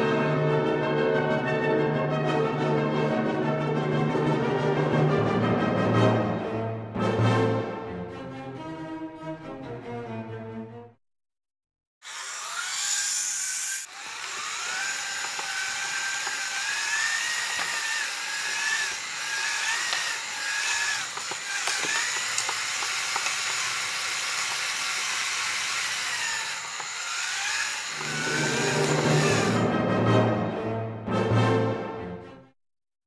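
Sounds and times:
toy car electric motors whining: 12.0 - 29.6.

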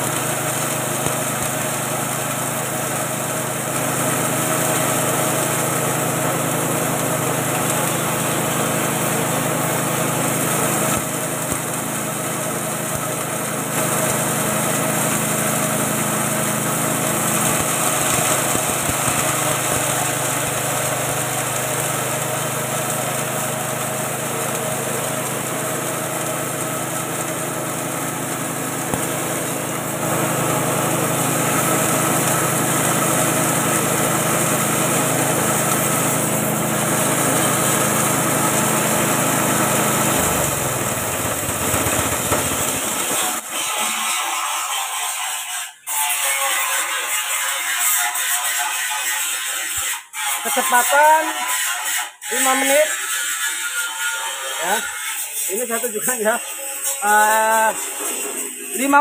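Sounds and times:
mill grinding feed: 0.0 - 59.0
petrol engine running: 23.7 - 43.1.

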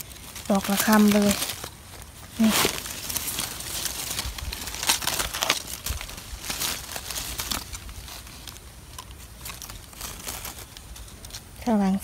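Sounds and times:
dry leaves rustling and crackling: 0.0 - 12.0.

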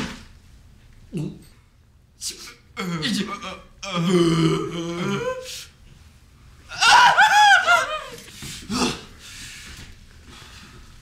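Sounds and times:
person giggling: 7.2 - 8.3.

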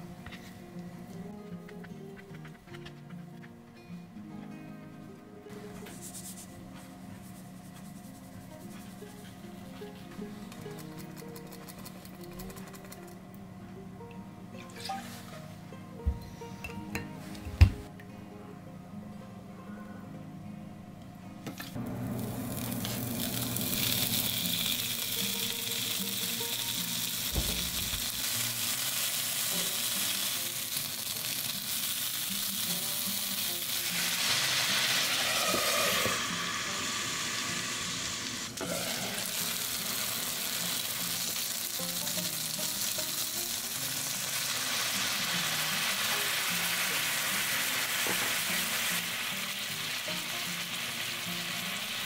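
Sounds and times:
food sizzling in frying pan: 21.8 - 52.0
water hissing in hot pan: 22.1 - 52.0.

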